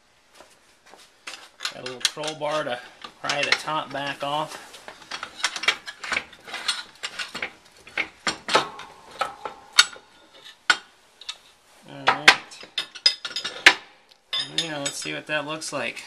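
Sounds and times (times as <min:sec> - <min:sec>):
steel tooling clanking: 0:01.6 - 0:15.2.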